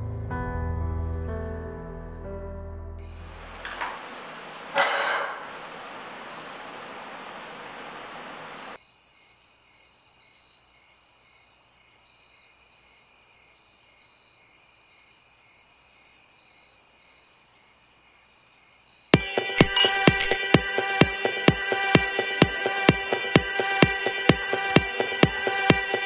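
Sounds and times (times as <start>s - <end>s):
low hiss: 3.0s - 8.8s
insects chirring: 3.0s - 21.4s
electronic music with a beat: 19.2s - 26.0s.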